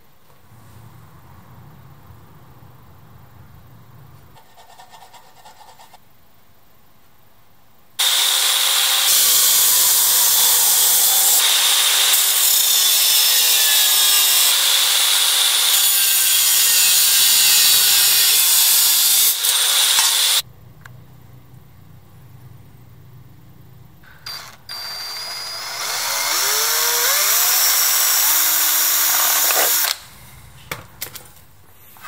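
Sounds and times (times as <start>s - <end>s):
angle grinder cutting metal: 8.0s - 20.4s, 24.2s - 30.0s.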